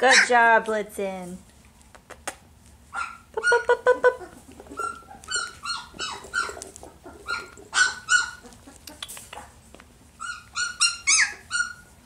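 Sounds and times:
puppies yipping: 0:00.0 - 0:00.4, 0:02.9 - 0:09.6, 0:10.2 - 0:12.0.

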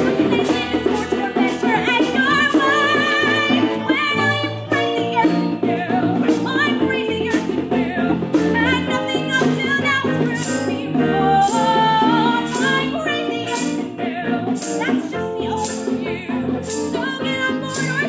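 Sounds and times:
live band and orchestra: 0:00.0 - 0:18.0
woman singing: 0:00.0 - 0:18.0.

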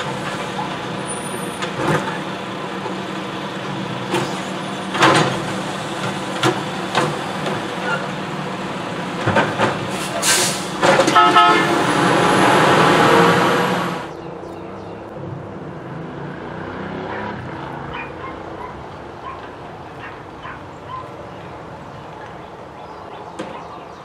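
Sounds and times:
garbage truck engine rumble: 0:00.0 - 0:14.2
loud air hiss: 0:09.9 - 0:10.8
truck horn toot: 0:10.3 - 0:14.0.

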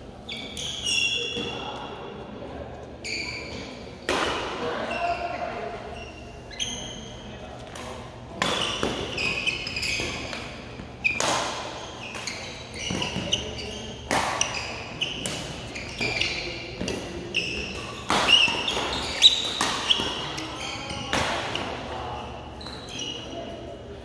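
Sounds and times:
sneakers squeaking on court: 0:00.2 - 0:02.1, 0:02.9 - 0:04.0, 0:04.8 - 0:23.7
racket hitting shuttlecock: 0:07.7 - 0:21.8.

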